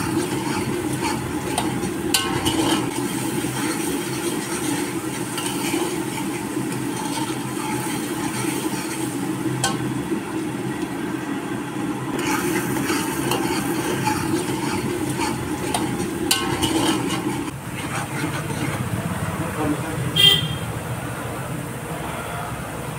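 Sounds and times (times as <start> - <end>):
ladle scraping dry mixture: 0.0 - 9.6, 12.2 - 18.9.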